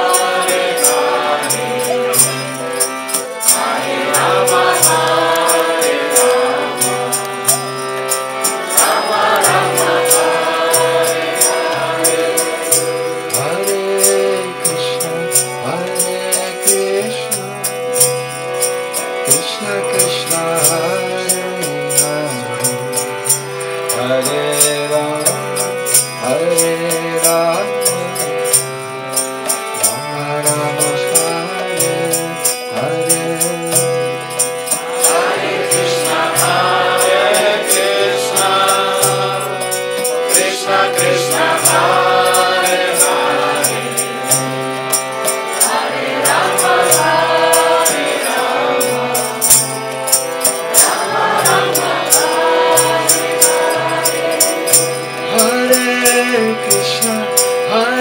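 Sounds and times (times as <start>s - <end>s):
group singing in chorus: 0.0s - 17.0s, 29.8s - 56.8s
man singing lead: 0.0s - 18.2s, 18.9s - 23.2s, 23.8s - 28.8s, 29.4s - 58.0s
hand cymbals striking a beat: 0.0s - 58.0s
harmonium drone: 0.0s - 58.0s.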